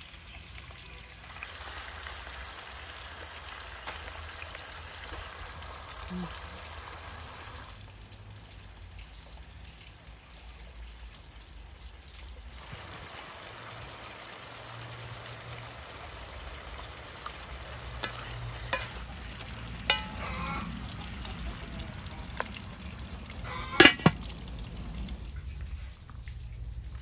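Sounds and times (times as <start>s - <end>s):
meat sizzling in a pot: 0.0s - 8.9s, 12.4s - 25.3s
wooden spoon knocking on pot: 19.8s - 20.8s, 23.5s - 24.2s.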